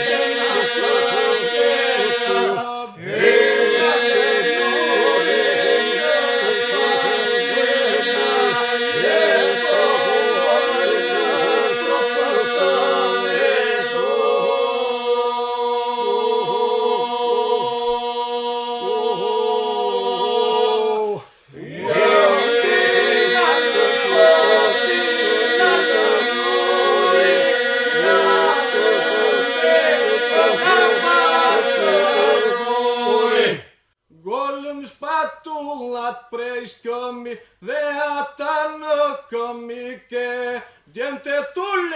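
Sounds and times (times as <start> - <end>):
men singing a cappella: 0.0 - 33.6.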